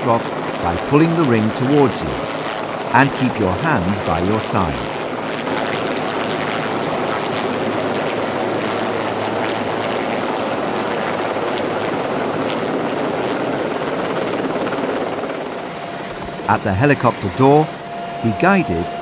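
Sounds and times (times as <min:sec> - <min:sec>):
low hum: 0:00.0 - 0:05.2, 0:15.5 - 0:19.0
helicopter rotor and engines: 0:00.0 - 0:19.0.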